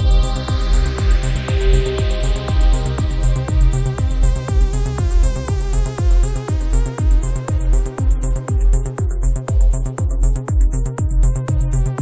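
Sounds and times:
four-on-the-floor kick drum: 0.0 - 12.0
sustained synth chords: 0.0 - 12.0.

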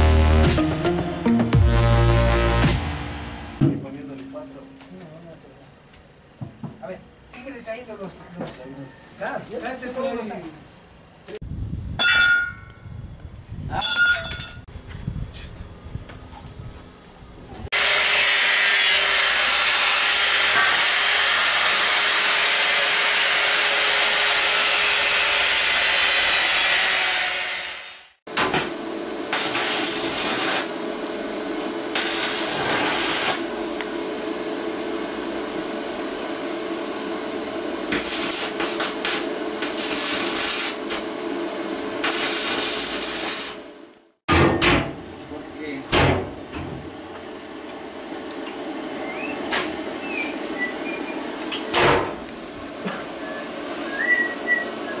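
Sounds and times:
arc welding crackling: 28.5 - 30.8, 31.9 - 33.8, 37.8 - 41.2, 42.0 - 43.7.

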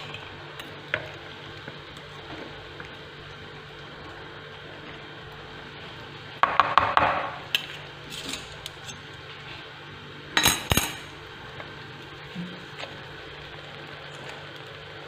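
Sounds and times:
oil sizzling: 0.0 - 15.0
forks clinking on pans: 10.4 - 11.1.

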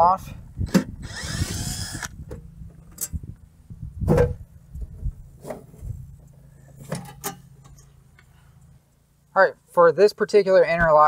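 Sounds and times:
power drill whirring: 0.8 - 2.2.

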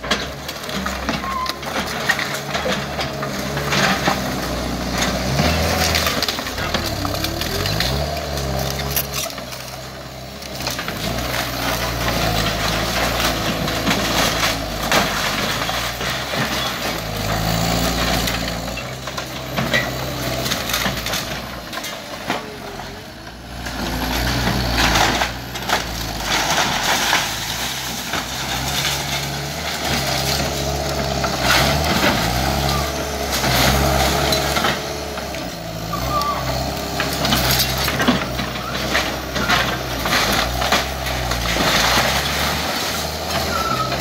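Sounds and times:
skid steer engine revving: 0.0 - 44.0
wood crunching and splintering: 0.0 - 44.0.

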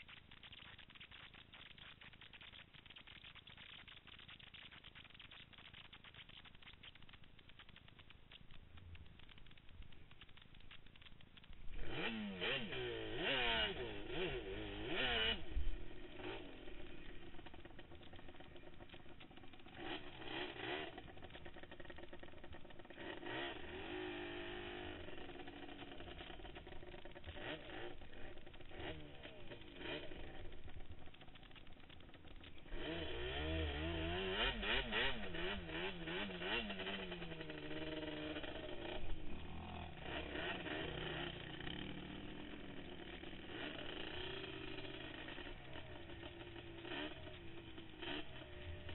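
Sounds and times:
quad engine revving: 11.4 - 48.9.

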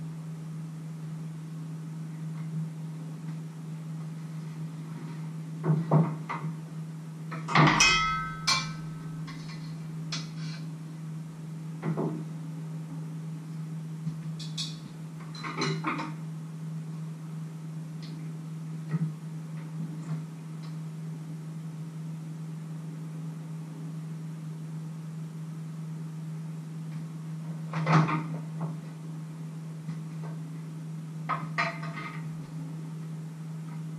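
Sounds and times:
steady low hum: 0.0 - 33.9
utensils and pans clinking: 7.5 - 9.6.

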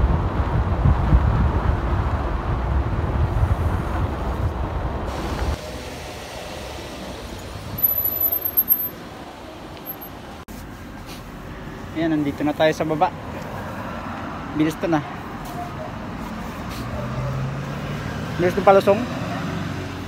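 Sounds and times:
wind rumbling on microphone: 0.0 - 5.6
high thin squeal: 7.4 - 9.0.

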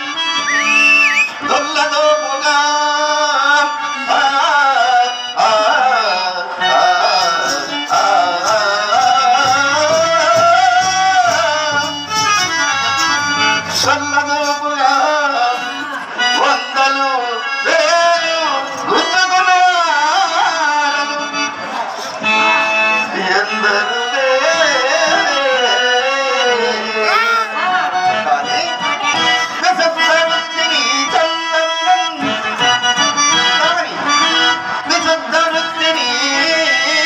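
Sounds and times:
harmonium: 0.0 - 37.0
person singing: 1.4 - 21.1, 23.0 - 28.6.

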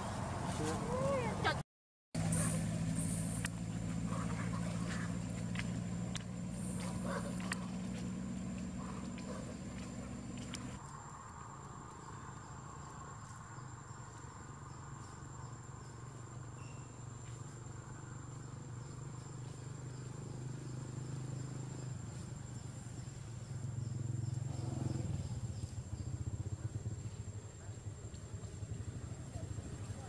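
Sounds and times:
insects droning: 2.2 - 30.0
short insect chirps: 2.3 - 3.7, 13.3 - 26.4.

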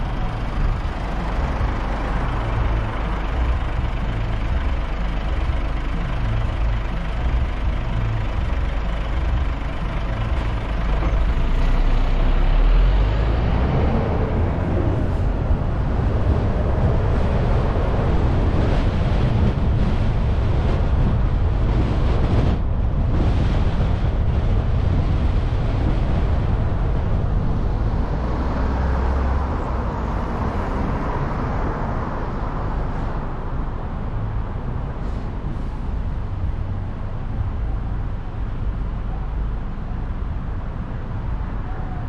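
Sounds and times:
car road and engine rumble: 0.0 - 42.0
wind on microphone: 13.2 - 39.1.

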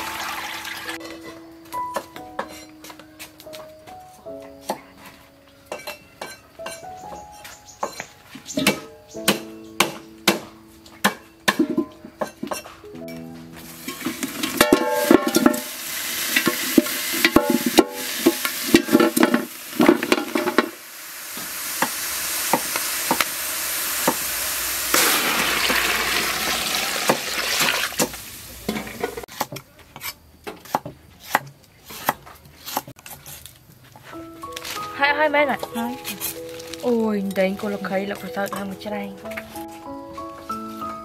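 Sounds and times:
steady rushing hiss: 13.5 - 29.3
bones clanking into metal pot: 13.9 - 20.8.

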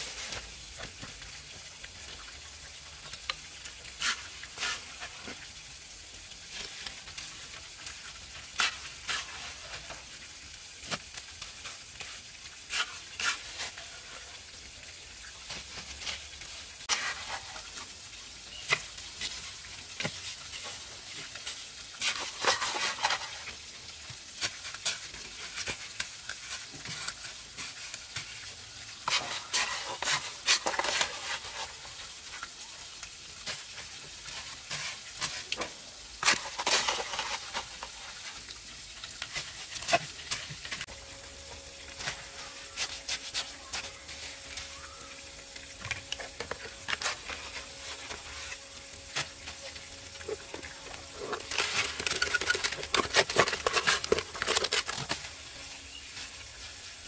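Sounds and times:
trowel scraping mortar on brick: 29.0 - 31.8, 36.2 - 38.2, 50.2 - 55.3.

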